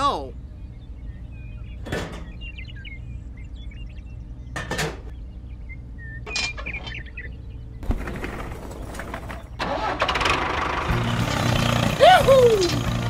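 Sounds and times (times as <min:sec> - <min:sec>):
steady low hum: 0:00.0 - 0:09.6.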